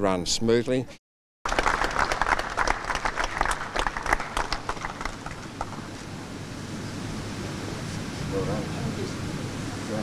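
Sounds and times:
people applauding: 1.5 - 5.9.

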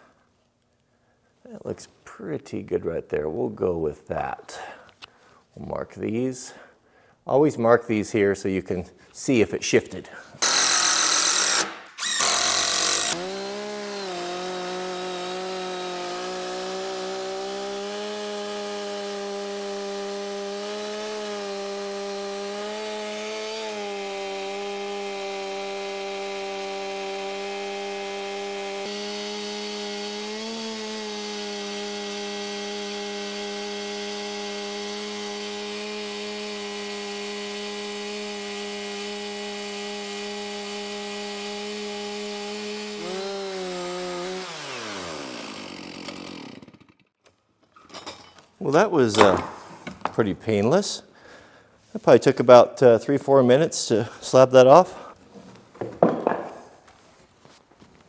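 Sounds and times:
chainsaw cutting log: 10.4 - 47.2, 48.8 - 49.8.

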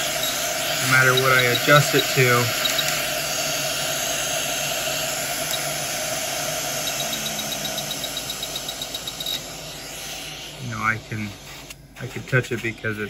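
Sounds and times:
hot air blower hissing: 0.0 - 13.0.

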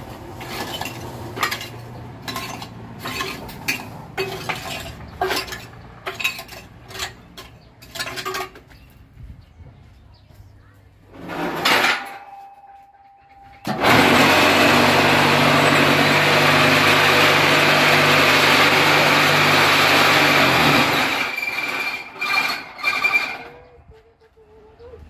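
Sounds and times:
vibrator motor rattling buzz: 13.6 - 23.5.

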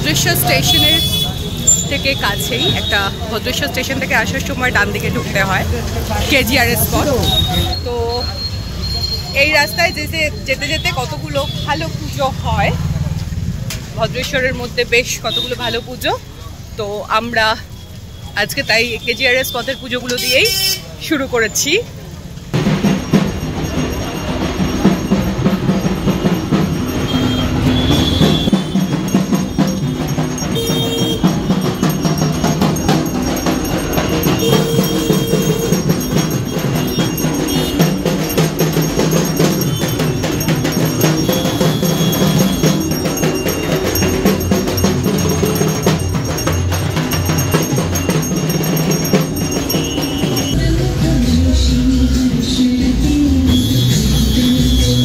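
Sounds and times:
bell-like ringing: 0.0 - 12.6, 22.6 - 51.6, 53.4 - 55.0
fast dense percussion music: 0.0 - 55.0.

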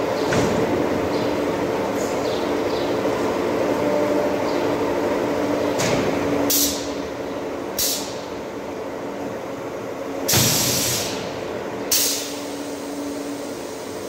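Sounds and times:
compressed air hisses: 10.3 - 11.2, 11.9 - 14.0.

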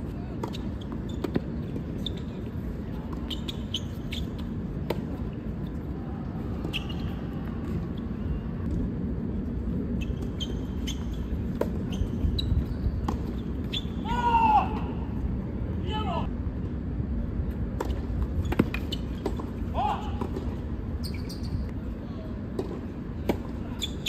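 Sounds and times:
sports shoes squeaking on court: 0.4 - 4.6, 6.6 - 8.6, 9.9 - 14.0, 18.2 - 19.7, 20.4 - 21.7, 23.7 - 24.0
low hall rumble: 4.3 - 23.8.

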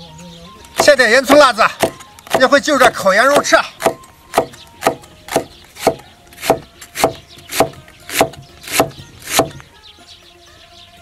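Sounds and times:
cleaver chopping on wooden board: 0.8 - 2.6, 3.2 - 9.6.

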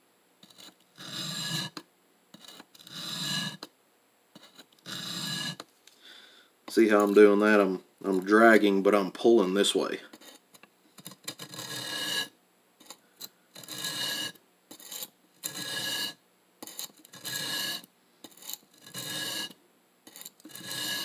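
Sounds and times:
knife scraping on sharpening plate: 0.4 - 1.8, 2.4 - 3.6, 4.4 - 5.6, 11.0 - 13.0, 13.6 - 21.0.

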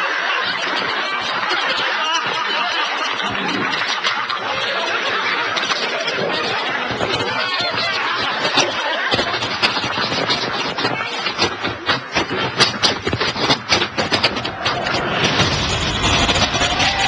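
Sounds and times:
people laughing: 0.0 - 13.5, 14.2 - 17.0
noisy background: 0.0 - 17.0.

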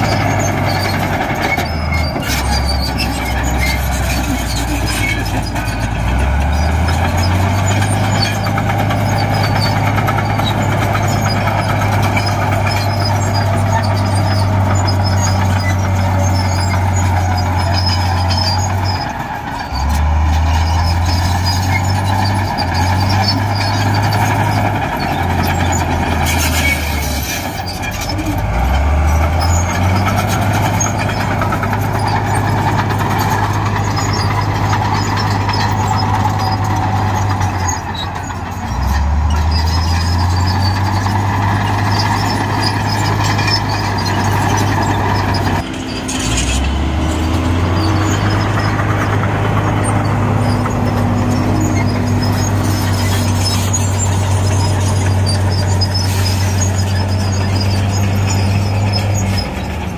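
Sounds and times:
heavy diesel machinery revving: 0.0 - 59.9.

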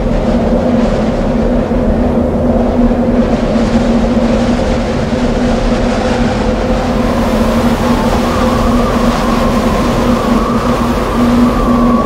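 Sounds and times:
low hum: 0.0 - 12.0
wind blowing over microphone: 0.0 - 12.0
wavering whistle: 5.8 - 12.0.

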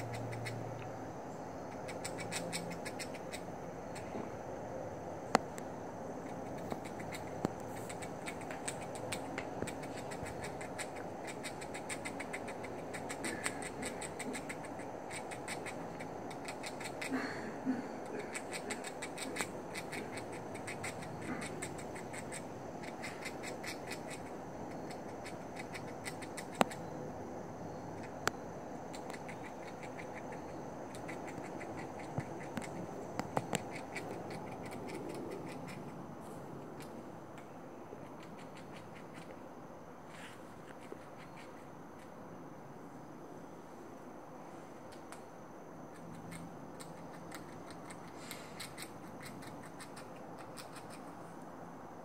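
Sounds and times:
low background hum: 0.0 - 52.0
squirrel gnawing: 0.0 - 52.0
sharp clicks: 1.7 - 4.1, 5.3 - 17.1, 24.9 - 26.8.

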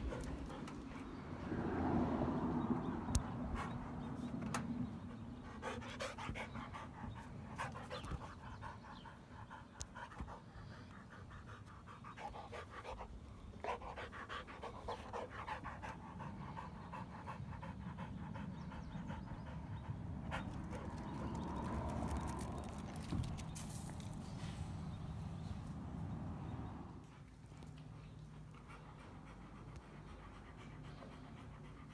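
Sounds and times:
dog panting rapidly: 5.4 - 22.8, 28.1 - 31.9.

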